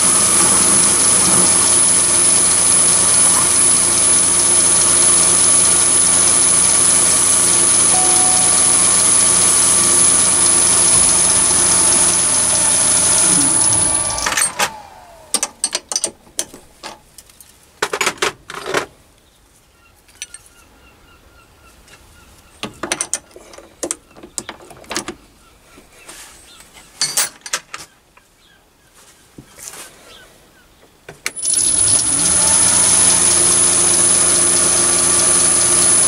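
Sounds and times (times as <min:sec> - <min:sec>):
lathe spindle whining: 0:00.0 - 0:15.5, 0:31.4 - 0:36.0
sharp metallic clicks and knocks: 0:15.3 - 0:17.0.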